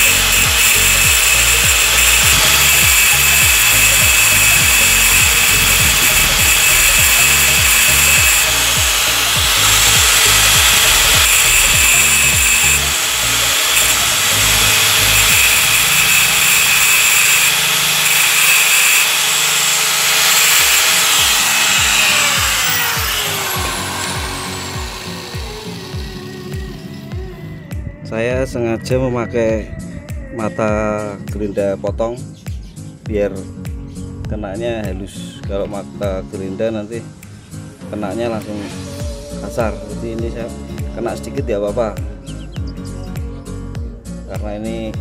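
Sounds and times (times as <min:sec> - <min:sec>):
grinder disc spinning down: 0:00.0 - 0:27.1
angle grinder grinding metal: 0:00.0 - 0:27.2.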